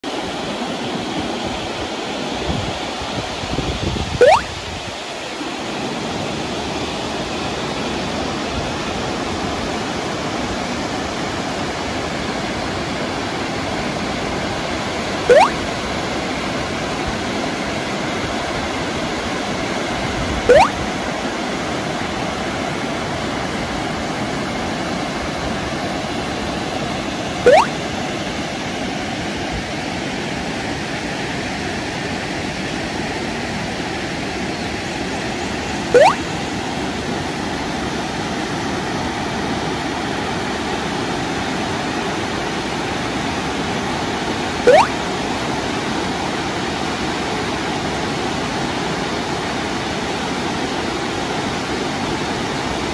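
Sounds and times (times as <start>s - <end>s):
short rising chirp: 4.2s - 4.5s, 15.3s - 15.6s, 20.5s - 20.8s, 27.5s - 27.7s, 36.0s - 36.2s, 44.7s - 45.0s.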